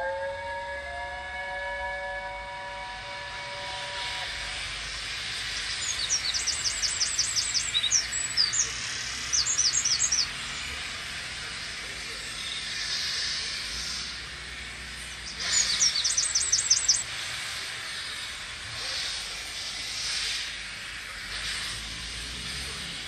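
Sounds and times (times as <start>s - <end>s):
steam locomotive chime whistle: 0.0s - 8.5s
steady hiss: 2.7s - 23.0s
small bird chirping: 5.6s - 8.7s, 9.3s - 10.3s, 15.4s - 17.0s.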